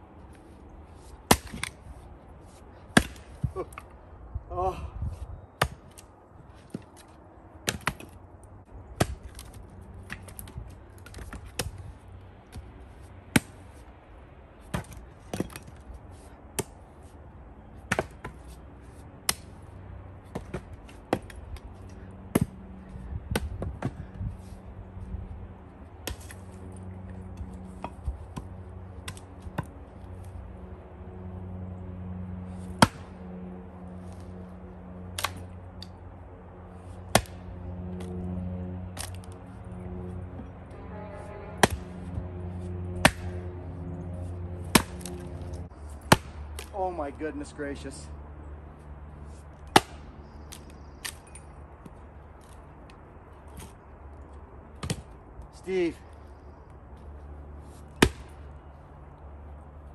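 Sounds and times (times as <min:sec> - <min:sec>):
axe chopping firewood: 0:01.2 - 0:01.9, 0:02.8 - 0:03.9, 0:05.5 - 0:08.2, 0:08.9 - 0:11.9, 0:13.3 - 0:13.6, 0:14.6 - 0:15.9, 0:16.5 - 0:17.0, 0:17.8 - 0:18.6, 0:19.2 - 0:19.6, 0:20.3 - 0:22.6, 0:23.2 - 0:24.2, 0:26.0 - 0:26.6, 0:27.3 - 0:29.8, 0:32.7 - 0:33.2, 0:35.1 - 0:36.0, 0:37.0 - 0:38.1, 0:38.9 - 0:39.2, 0:41.6 - 0:42.2, 0:42.9 - 0:43.5, 0:44.6 - 0:47.0, 0:49.6 - 0:52.0, 0:54.7 - 0:55.9, 0:57.9 - 0:58.4.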